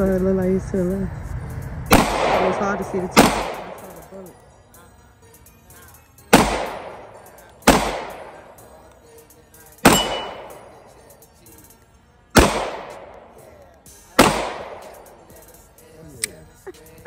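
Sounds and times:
pistol shots with echo: 0:01.9 - 0:04.1, 0:06.3 - 0:08.8, 0:09.8 - 0:11.2, 0:12.3 - 0:15.4.

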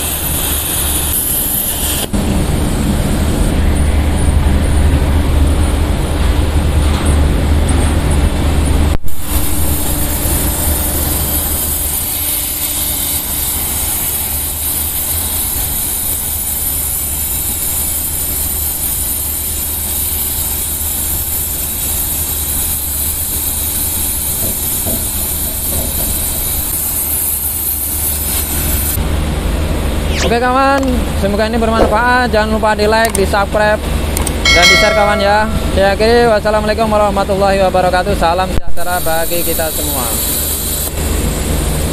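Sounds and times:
plasma cutter hissing: 0:00.0 - 0:02.2, 0:09.1 - 0:29.0, 0:38.8 - 0:41.1
low hum: 0:34.5 - 0:35.8.

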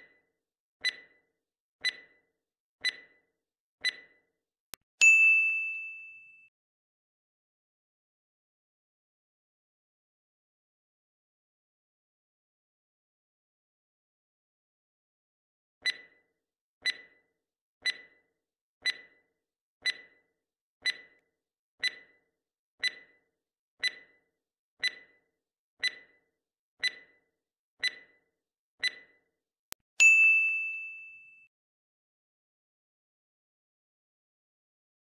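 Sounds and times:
countdown timer ticks: 0:00.8 - 0:01.2, 0:01.8 - 0:02.2, 0:02.8 - 0:03.2, 0:03.8 - 0:04.2, 0:15.8 - 0:16.2, 0:16.8 - 0:21.2, 0:21.8 - 0:22.2, 0:22.8 - 0:23.2, 0:23.8 - 0:24.2, 0:24.8 - 0:26.2, 0:26.8 - 0:27.2, 0:27.8 - 0:28.2, 0:28.8 - 0:29.8
bell-like ding: 0:05.0 - 0:06.5, 0:30.0 - 0:31.5.

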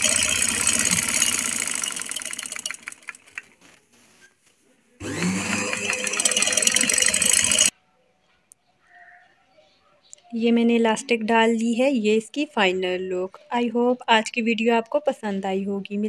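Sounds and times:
sewing machine stitching: 0:00.0 - 0:03.5, 0:05.0 - 0:07.7.

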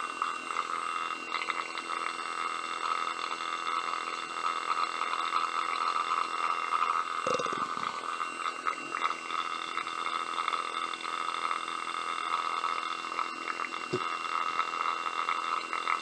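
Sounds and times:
water bubbling and gurgling: 0:07.3 - 0:08.2
steady hum: 0:07.3 - 0:08.7.

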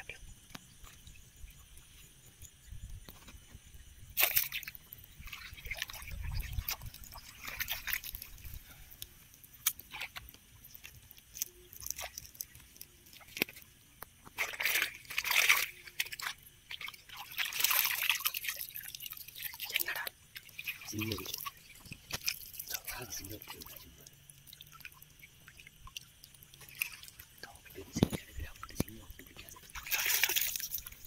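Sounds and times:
shallow water sloshing and splashing: 0:00.4 - 0:31.0.

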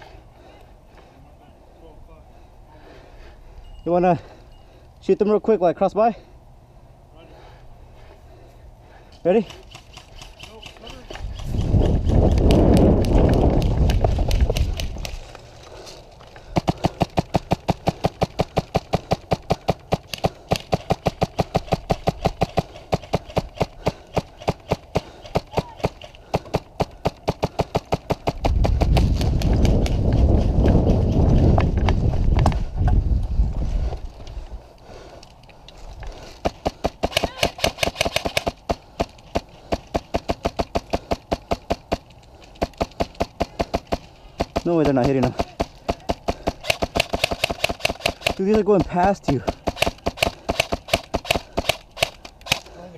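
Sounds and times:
rush of movement and wind: 0:00.0 - 0:52.9
airsoft gun rapid shots: 0:16.6 - 0:29.2, 0:36.4 - 0:42.0, 0:42.6 - 0:52.7.

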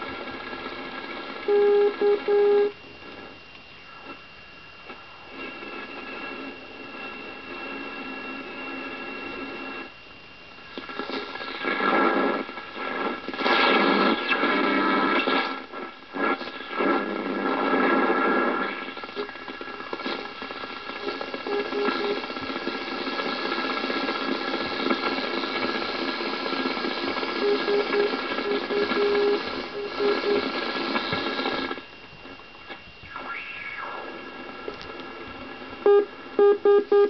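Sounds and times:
radio static and hiss: 0:00.0 - 0:37.0
morse code tone: 0:01.5 - 0:02.8, 0:21.1 - 0:22.3, 0:27.4 - 0:30.6, 0:35.8 - 0:37.0.

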